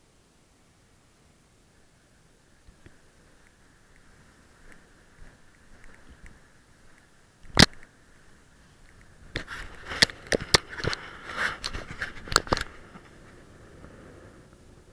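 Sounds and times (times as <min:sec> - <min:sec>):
clicks and rubbing near microphone: 0:04.7 - 0:07.9, 0:08.8 - 0:13.4
camera handling noise: 0:07.5 - 0:07.9, 0:09.0 - 0:13.2.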